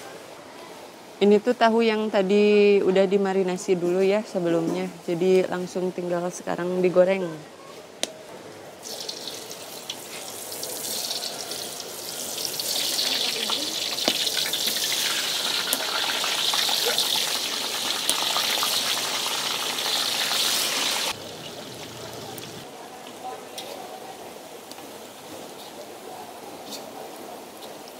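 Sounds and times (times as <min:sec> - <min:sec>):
tofu sizzling in hot oil: 0:08.8 - 0:22.6.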